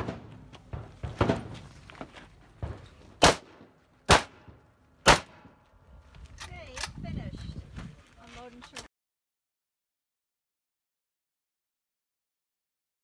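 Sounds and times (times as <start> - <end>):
rifle shots: 0.0 - 0.5, 3.2 - 5.5.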